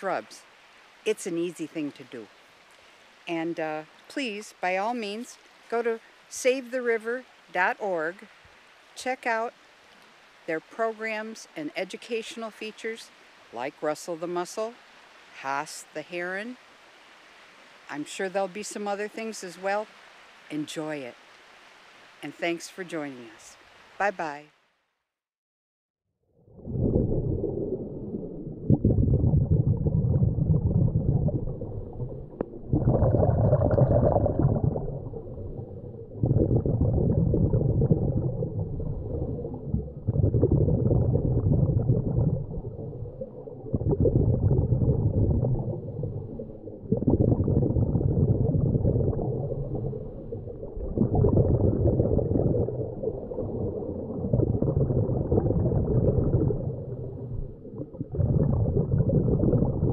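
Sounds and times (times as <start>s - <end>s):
exhaled bubbles gurgling: 26.4s - 59.9s.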